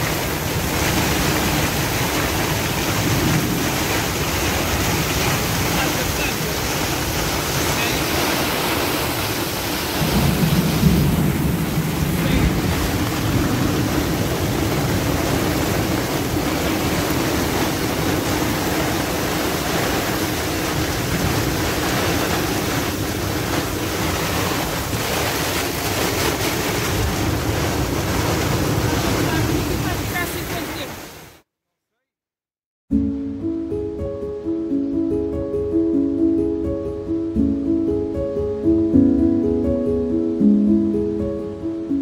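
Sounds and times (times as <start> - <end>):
storm wind buffeting microphone: 0.0 - 31.2
rough sea: 0.0 - 31.4.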